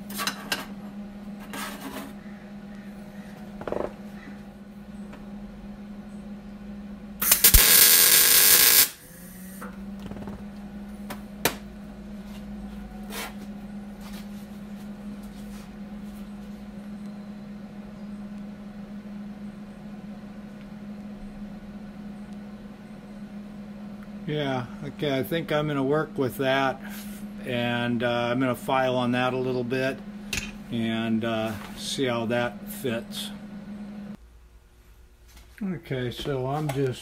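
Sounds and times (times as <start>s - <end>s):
steady hum: 0.0s - 37.0s
welder hissing: 7.2s - 9.6s, 24.3s - 33.4s.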